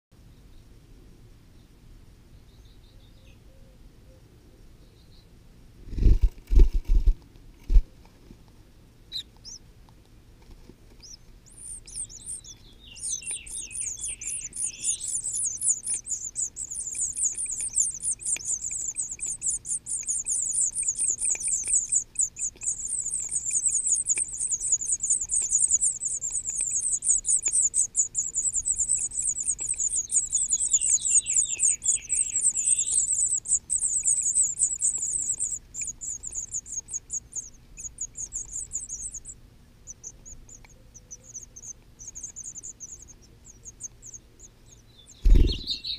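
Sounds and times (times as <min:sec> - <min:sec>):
nestlings begging chatter: 0:09.1 - 0:09.6, 0:11.0 - 0:45.9
lower falling chirps: 0:11.0 - 0:40.6, 0:45.0 - 0:45.9.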